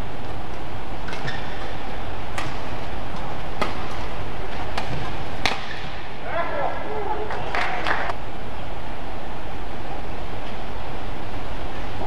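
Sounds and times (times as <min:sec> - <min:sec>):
rackets striking shuttlecock: 0:02.3 - 0:06.1.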